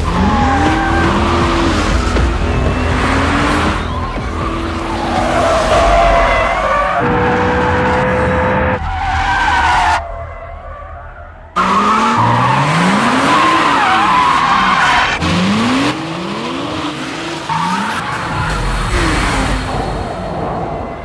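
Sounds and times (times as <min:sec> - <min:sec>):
tyres squealing: 0:00.0 - 0:16.2
car engines revving: 0:00.0 - 0:21.0.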